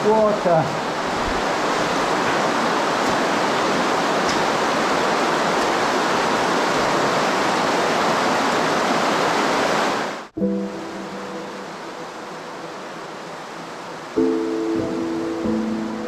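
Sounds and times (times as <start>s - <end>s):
running water rushing: 0.0s - 16.0s
piano music: 10.4s - 16.0s.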